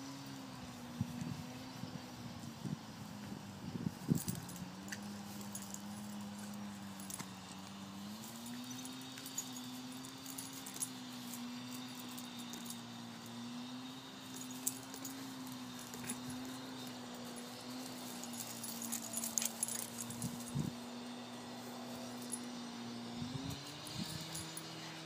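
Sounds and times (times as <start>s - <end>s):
faint jingling clicks: 4.1s - 13.5s, 14.1s - 20.7s, 23.5s - 25.0s.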